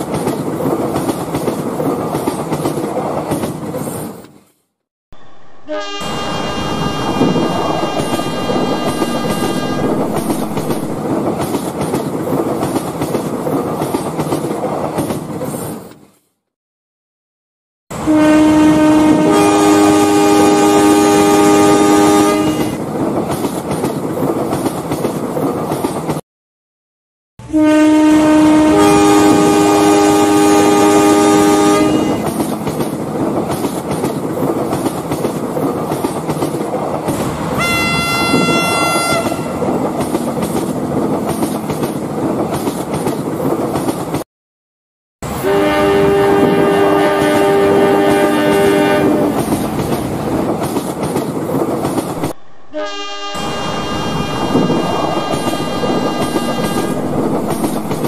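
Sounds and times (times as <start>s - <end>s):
train rumbling on rails: 0.0s - 4.4s, 5.2s - 16.0s, 17.9s - 26.2s, 27.4s - 44.2s, 45.2s - 58.0s
train horn chord: 5.2s - 11.0s, 18.0s - 22.7s, 27.4s - 32.2s, 37.6s - 39.6s, 45.4s - 49.3s, 52.4s - 57.5s.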